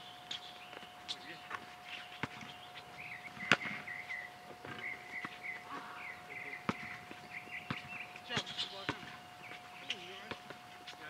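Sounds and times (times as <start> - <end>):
basketball bouncing: 2.2 - 2.6, 3.4 - 3.9, 6.6 - 10.6.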